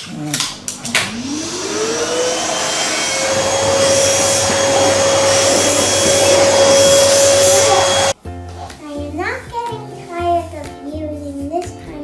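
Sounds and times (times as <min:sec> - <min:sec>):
vacuum motor whine: 0:00.3 - 0:08.2
rushing suction noise: 0:00.5 - 0:08.2.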